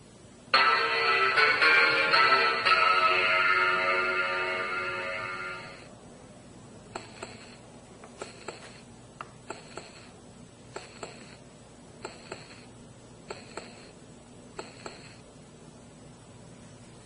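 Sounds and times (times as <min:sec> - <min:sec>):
pitched music-like tone: 0:00.6 - 0:05.9.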